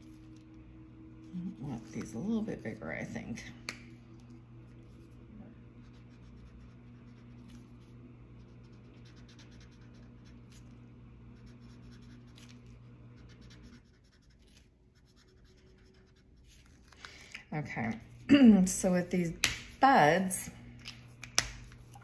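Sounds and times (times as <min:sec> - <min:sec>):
steady low hum: 0:00.0 - 0:22.0
marker scratching on paper: 0:08.4 - 0:10.7, 0:11.4 - 0:12.6, 0:13.2 - 0:16.8.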